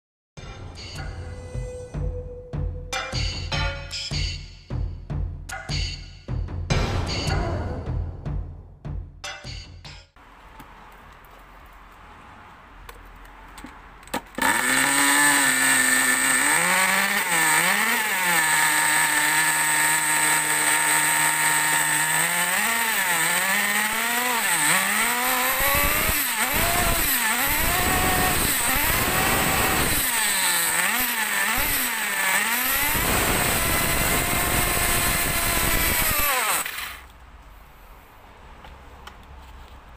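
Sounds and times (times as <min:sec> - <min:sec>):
nitro engine idling and revving: 0:14.2 - 0:37.0.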